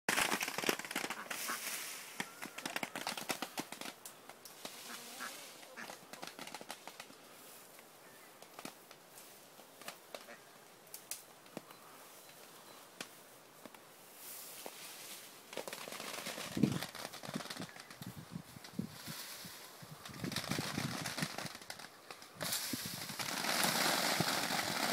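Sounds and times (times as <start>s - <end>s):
tree branches creaking: 0.1s - 7.4s, 14.5s - 24.9s
branches cracking: 0.1s - 11.7s, 14.4s - 24.9s
leaves rustling: 0.1s - 24.9s.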